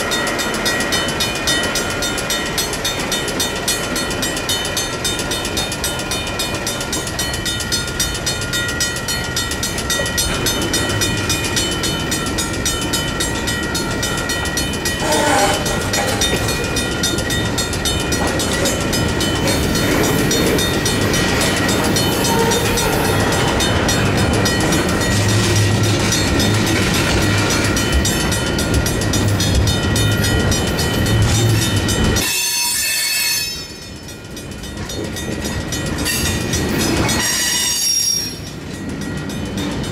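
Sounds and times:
railroad crossing bells ringing: 0.0s - 39.9s
train rolling by with rumble: 0.0s - 39.9s.

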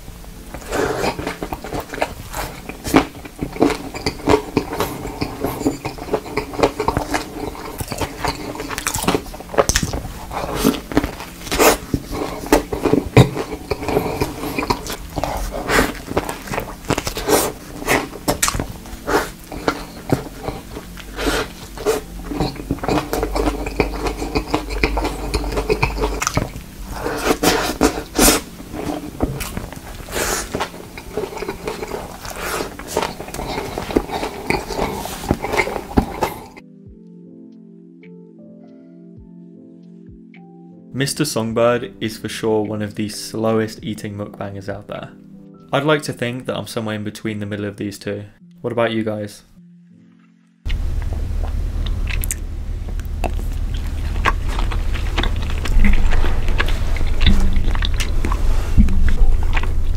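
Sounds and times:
fast chewing: 0.4s - 36.6s, 50.7s - 59.9s
mouth clicks and crackles: 0.4s - 36.6s, 50.7s - 59.9s
biting into soft buns: 0.6s - 36.6s, 50.7s - 59.9s.

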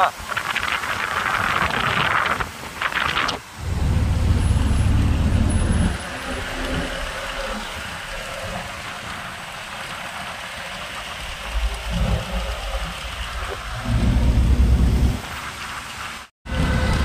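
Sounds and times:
road noise hiss: 0.0s - 17.0s
low engine rumble: 3.5s - 15.6s, 16.5s - 17.0s.

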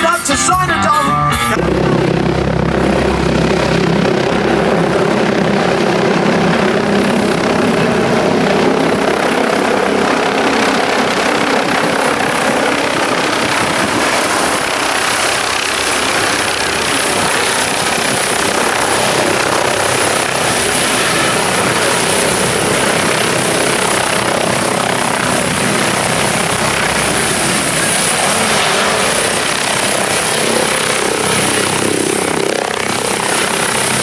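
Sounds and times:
helicopter roar: 0.0s - 34.0s.

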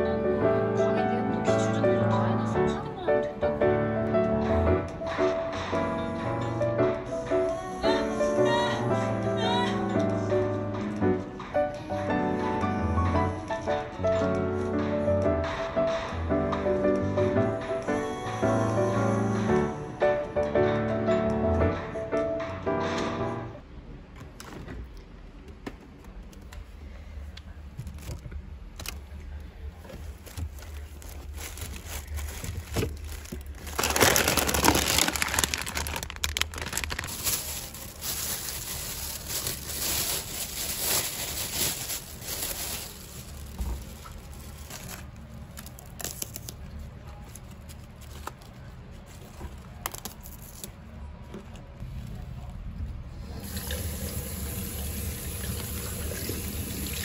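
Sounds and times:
plastic bag crinkling: 30.1s - 49.2s.

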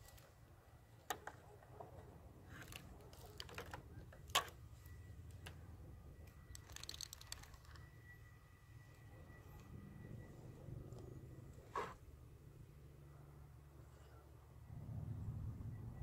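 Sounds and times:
fishing line clicking: 6.3s - 8.0s.

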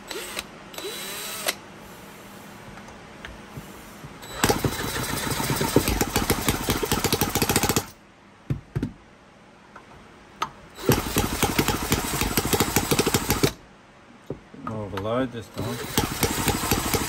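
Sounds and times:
cordless drill whirr: 0.0s - 1.6s, 10.8s - 13.6s, 15.5s - 17.0s.

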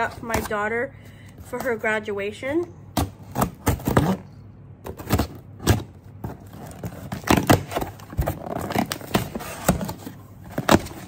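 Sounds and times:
scissors cutting packing tape: 4.9s - 11.0s.

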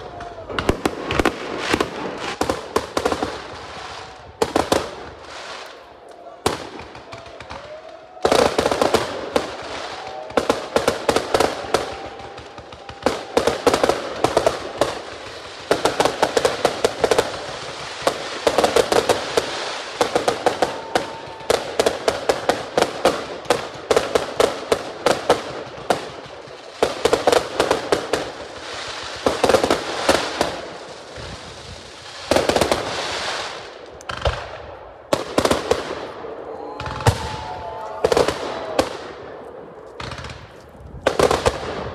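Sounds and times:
fireworks bursting and crackling: 0.0s - 41.9s.

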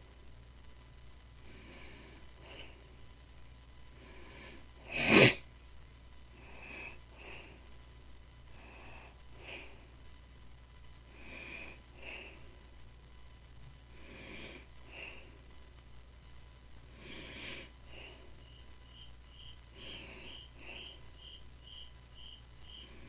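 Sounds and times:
man breathing: 1.4s - 2.9s, 6.4s - 7.7s, 11.1s - 12.6s, 16.9s - 21.3s.

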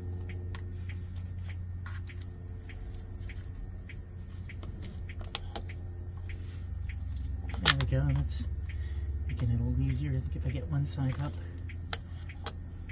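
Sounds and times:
low background hum: 0.0s - 12.9s.

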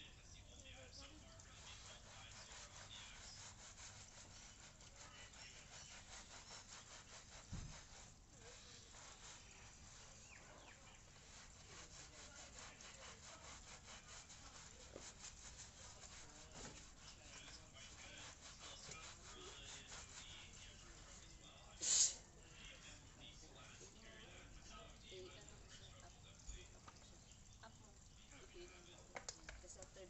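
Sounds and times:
stiff brush scrubbing mat: 1.2s - 21.5s.

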